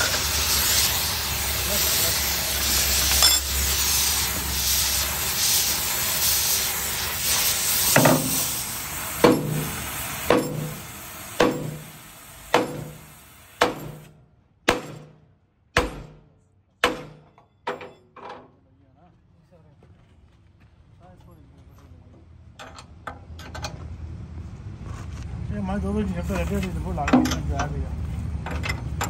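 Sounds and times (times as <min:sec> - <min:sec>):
steady hiss: 0:00.0 - 0:14.1
hammer blows on metal: 0:09.2 - 0:14.1.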